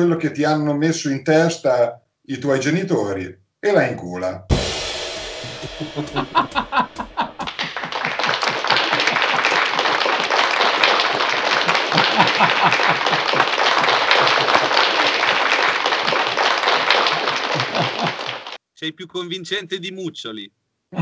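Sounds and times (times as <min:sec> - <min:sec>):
laughter: 0:05.6 - 0:18.6
rapid hand clapping: 0:05.6 - 0:18.6.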